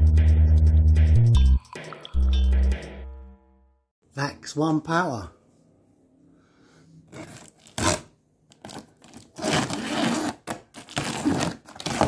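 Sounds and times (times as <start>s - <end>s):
cardboard tearing and scraping: 7.1s - 12.0s.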